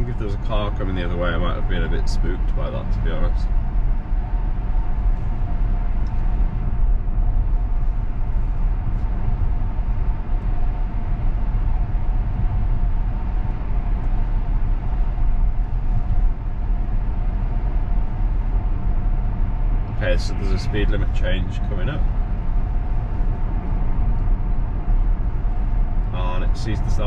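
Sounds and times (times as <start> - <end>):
road and tyre rumble in car: 0.0 - 27.0
faint high hum: 19.9 - 27.0.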